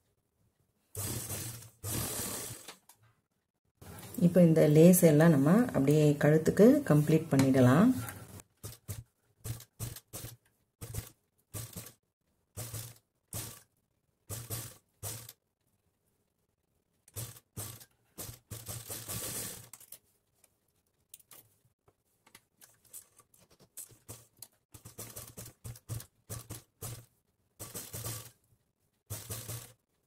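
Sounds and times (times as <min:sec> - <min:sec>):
sewing machine stitching: 0:00.9 - 0:02.9, 0:08.0 - 0:13.7, 0:14.3 - 0:15.4, 0:17.1 - 0:19.9, 0:23.9 - 0:28.4, 0:29.1 - 0:30.0.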